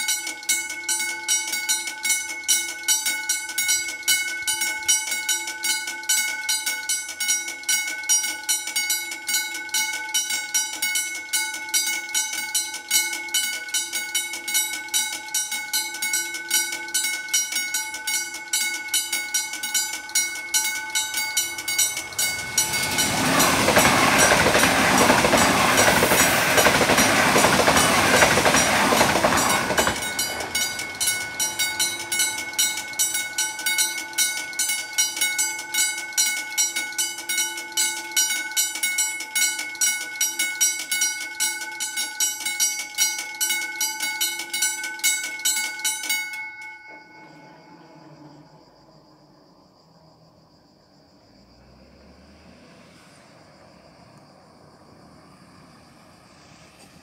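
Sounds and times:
level crossing warning bell: 0.0 - 48.4
train passing: 10.8 - 40.6, 50.9 - 57.0.

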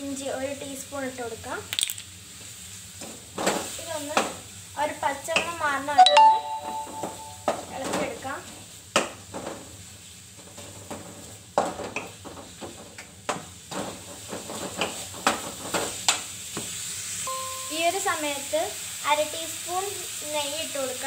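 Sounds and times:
onions sizzling in oil: 0.0 - 6.0, 7.2 - 21.0
spatula clacking and scraping pan: 10.4 - 16.3.

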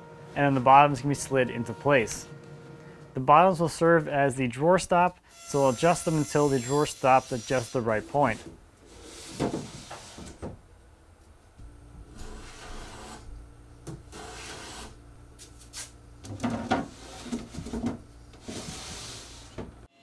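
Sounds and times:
wooden drawer scraping: 16.3 - 19.8.

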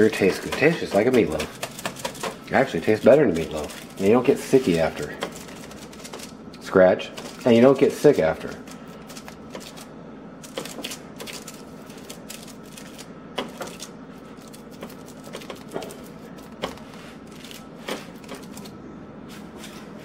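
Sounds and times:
hands patting meat mixture: 0.0 - 6.3
steady low hum: 0.0 - 20.0.

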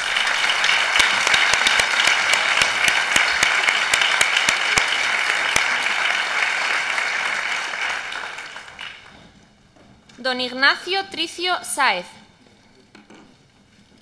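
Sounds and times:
single sharp claps: 0.0 - 7.0
crowd applause: 0.0 - 9.4.

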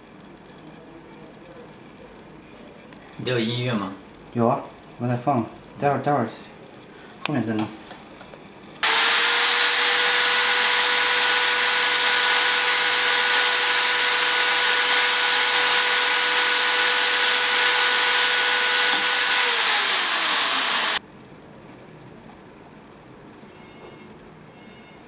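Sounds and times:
electric drill grinding glass: 8.8 - 21.0.

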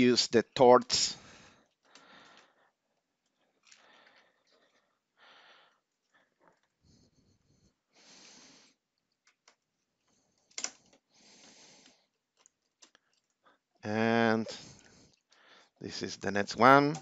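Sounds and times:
faint breathing: 1.2 - 2.8, 3.6 - 8.8, 10.1 - 12.2, 14.2 - 15.8.

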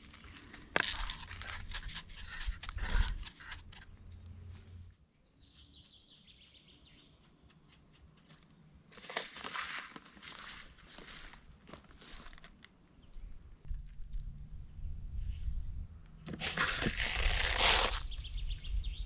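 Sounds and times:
crunching footsteps: 0.0 - 3.1, 7.5 - 12.8, 16.3 - 18.2
rustling and twigs crunching: 0.0 - 4.8, 8.2 - 14.6, 16.2 - 18.4.

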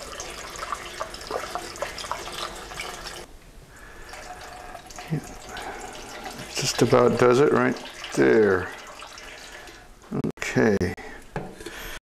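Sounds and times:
liquid pouring through a funnel: 0.0 - 10.0.

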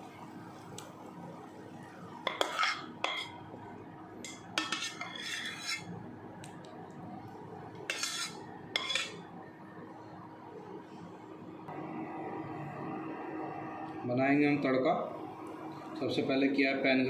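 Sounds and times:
spoon scraping a pan: 2.3 - 3.4, 4.2 - 5.9, 7.8 - 9.3.

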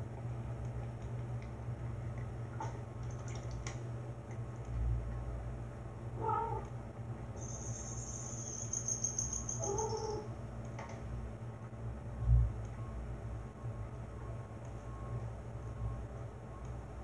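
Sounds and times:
steady low hum: 0.0 - 17.0
cat meowing: 6.2 - 6.7
thin high steady tone: 7.4 - 10.3.

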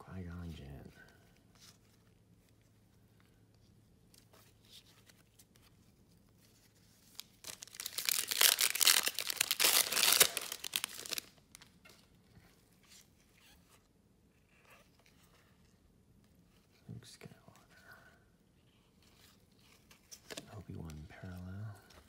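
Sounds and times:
cards shuffling: 6.4 - 11.7
card wrapper tearing and crinkling: 7.0 - 11.7.

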